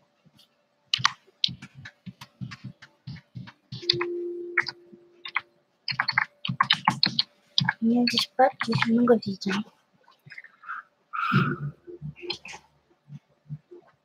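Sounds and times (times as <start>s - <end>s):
computer keyboard and mouse clicks: 1.0s - 9.0s
steady hum: 11.2s - 13.8s.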